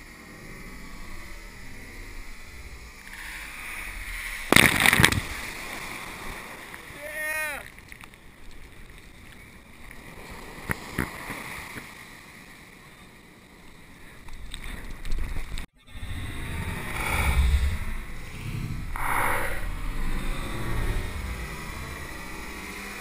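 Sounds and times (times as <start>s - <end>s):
low rumble: 0.0s - 6.6s, 15.8s - 23.0s.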